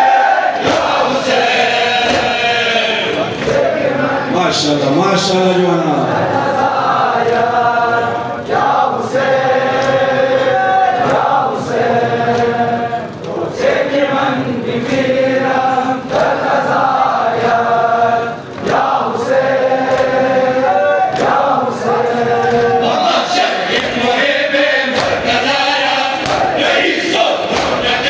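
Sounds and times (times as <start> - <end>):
crowd of men chanting: 0.0 - 28.0
chest-beating slaps: 27.4 - 28.0.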